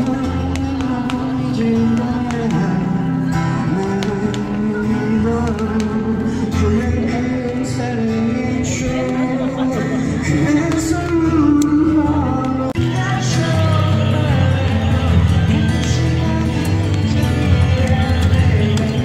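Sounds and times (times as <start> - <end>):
person singing: 0.0 - 19.0
strummed acoustic guitar: 0.0 - 19.0.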